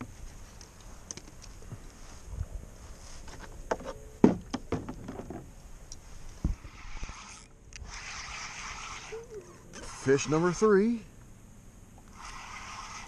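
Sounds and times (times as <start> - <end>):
steady hiss: 5.4 - 13.0.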